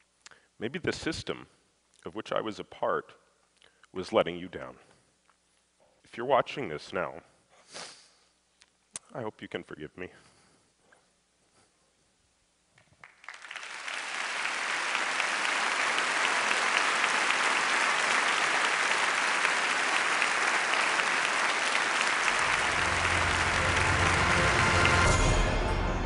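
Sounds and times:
large audience applauding: 0:13.0 - 0:26.0.

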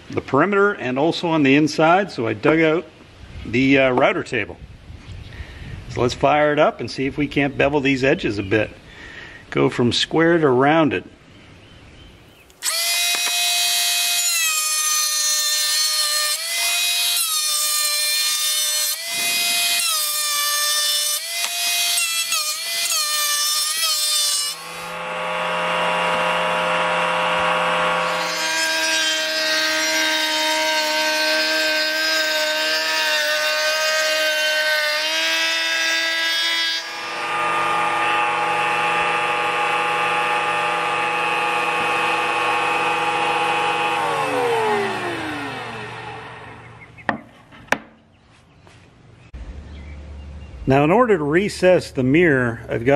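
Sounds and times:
router whining: 0:12.5 - 0:47.9.

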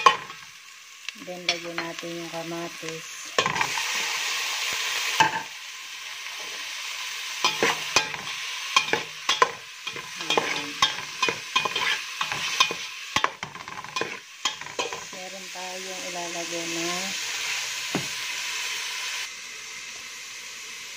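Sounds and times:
tomatoes sizzling in hot oil: 0:00.0 - 0:20.9
metal spoon scraping pot: 0:07.5 - 0:15.2.

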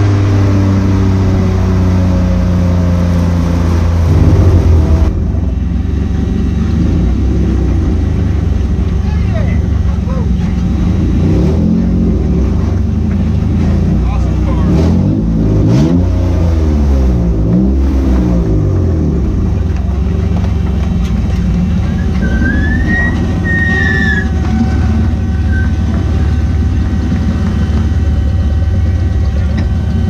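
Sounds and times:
car engine revving: 0:00.0 - 0:30.0
brief high squeal: 0:22.0 - 0:25.9.

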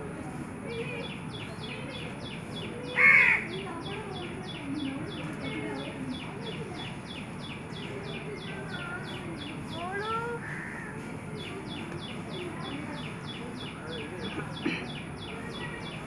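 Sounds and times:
crow cawing: 0:03.0 - 0:03.5, 0:10.4 - 0:10.9.

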